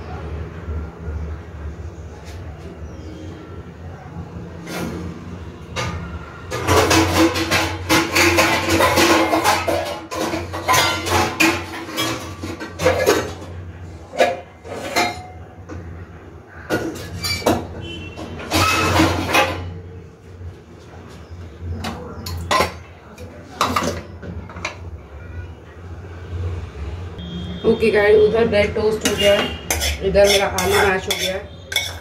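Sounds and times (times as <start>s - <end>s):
utensils and dishes clinking: 4.6s - 15.9s, 16.7s - 20.1s, 21.2s - 24.9s, 28.8s - 32.0s.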